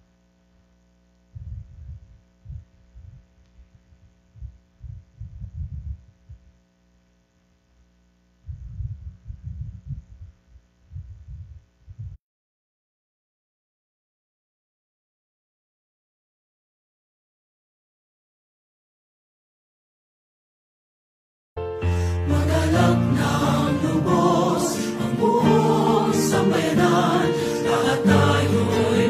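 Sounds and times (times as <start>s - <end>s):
steady electrical hum: 0.0s - 12.2s
low thumps and rumbles: 1.4s - 3.3s, 4.3s - 6.5s, 8.5s - 12.2s.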